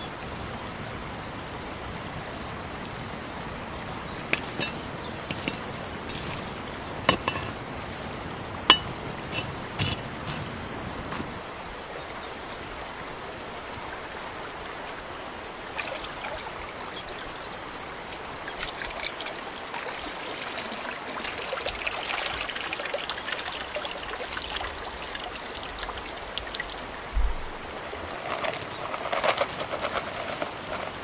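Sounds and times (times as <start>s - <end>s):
water running over stones: 0.0s - 31.0s
water splashing in a tub: 15.7s - 16.8s.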